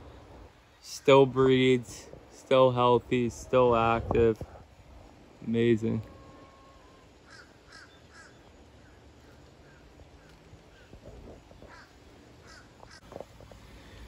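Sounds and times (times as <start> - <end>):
faint harsh bird calls: 5.8 - 14.0
soft rustles and knocks: 12.8 - 13.6.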